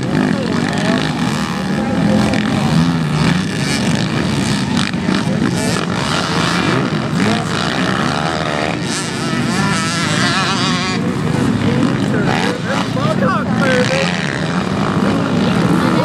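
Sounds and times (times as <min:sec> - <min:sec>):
dirt bike engines revving: 0:00.0 - 0:16.0.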